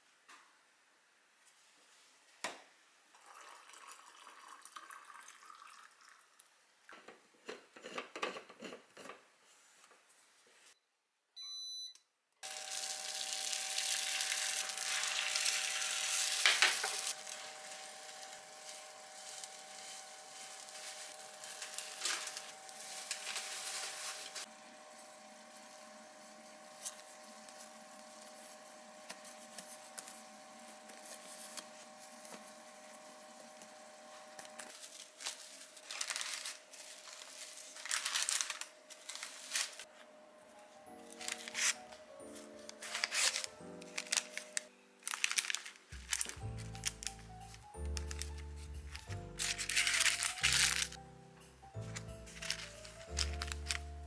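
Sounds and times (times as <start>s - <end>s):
short electronic beep: 11.4s - 12.0s
egg sizzling in a pan: 12.4s - 26.7s.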